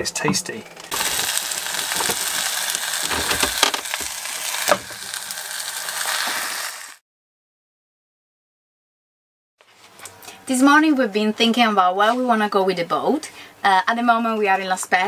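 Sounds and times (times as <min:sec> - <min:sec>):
pizzas sizzling in a frying pan: 0:00.9 - 0:07.0.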